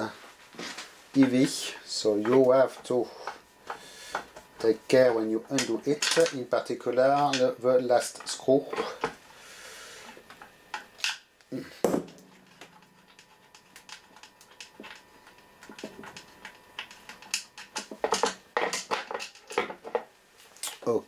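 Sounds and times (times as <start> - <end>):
hand tools clicking and knocking: 1.2 - 4.5, 5.4 - 9.2, 11.9 - 20.8.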